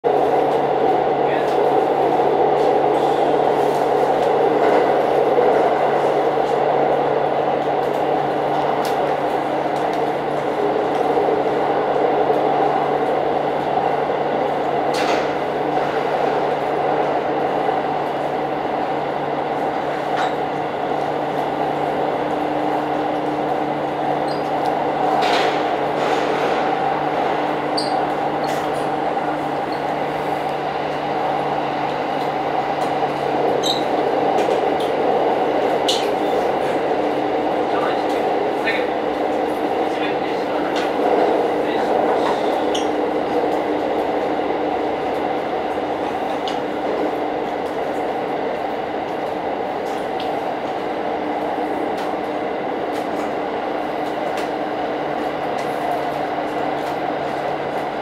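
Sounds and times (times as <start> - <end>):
railcar engine and wheels rumbling: 0.0 - 58.0.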